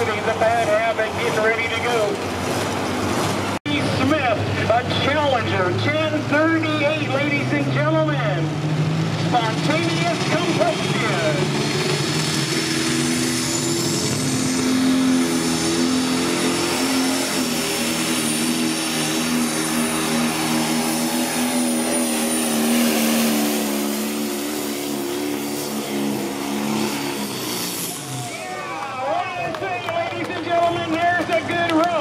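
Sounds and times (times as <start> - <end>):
tractor engine under load: 0.0 - 32.0.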